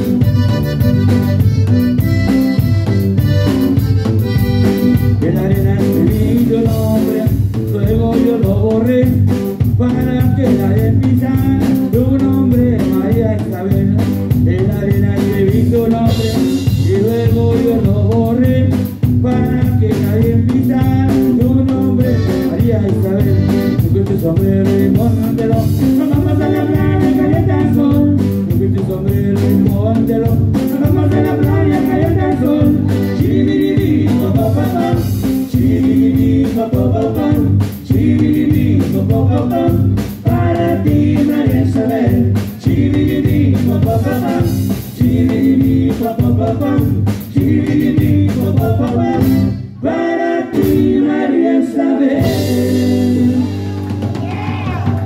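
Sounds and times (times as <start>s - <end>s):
button accordion melody: 0.0s - 6.2s, 21.7s - 28.2s, 30.8s - 38.6s, 46.6s - 49.8s
drum kit beat: 0.0s - 49.8s, 50.5s - 51.4s, 52.1s - 55.0s
electric bass: 0.0s - 55.0s.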